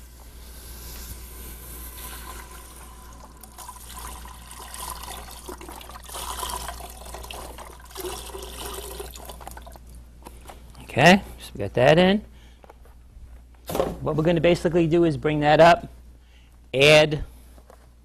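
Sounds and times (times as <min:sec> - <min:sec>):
broth pouring into a stockpot: 0:01.6 - 0:09.9
liquid splashing: 0:02.0 - 0:10.0.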